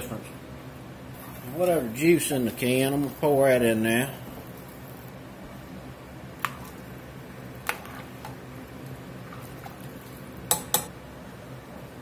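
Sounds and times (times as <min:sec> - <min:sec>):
faint steady hum: 0:00.0 - 0:12.0
spoon stirring a pot: 0:07.6 - 0:10.9
spoon clinking against pot: 0:10.5 - 0:10.9.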